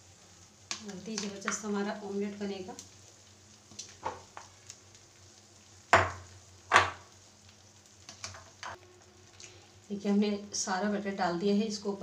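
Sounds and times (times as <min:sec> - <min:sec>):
faint sizzle: 0:00.0 - 0:12.0
knocks against pan: 0:06.0 - 0:07.0.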